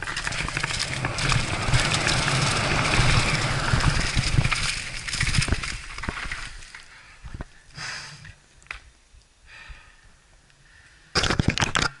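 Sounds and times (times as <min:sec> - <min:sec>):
wind on microphone: 0:00.0 - 0:06.6
bicycle rattling over dirt: 0:00.0 - 0:07.6.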